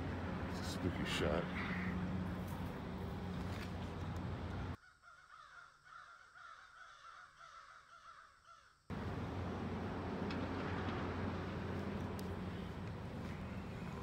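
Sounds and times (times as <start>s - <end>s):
crows cawing: 4.8s - 8.8s.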